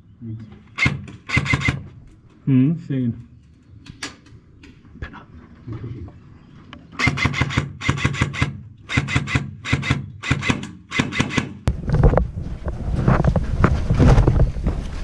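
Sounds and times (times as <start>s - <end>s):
airsoft rifle firing bursts: 0.8s - 1.9s, 7.0s - 11.6s
wind noise on microphone: 11.7s - 15.0s.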